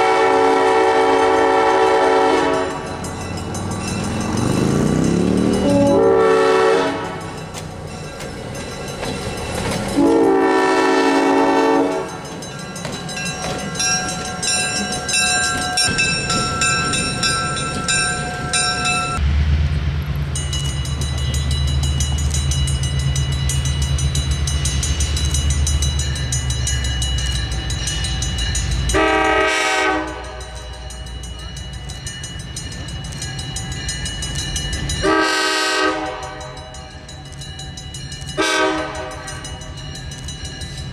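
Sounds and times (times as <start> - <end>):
locomotive horn blasts: 0.0 - 2.9, 5.6 - 7.4, 10.0 - 12.2, 28.9 - 30.9, 35.0 - 36.7, 38.4 - 39.5
diesel engine rumble: 13.1 - 28.9.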